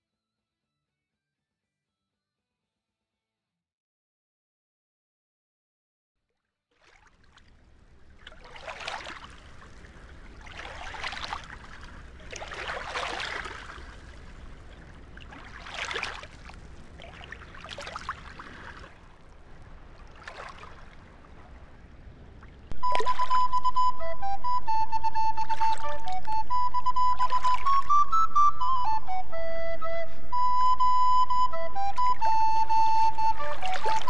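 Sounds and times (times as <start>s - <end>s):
water sloshing and lapping: 6.7s - 24.1s, 25.2s - 28.4s, 31.5s - 34.0s.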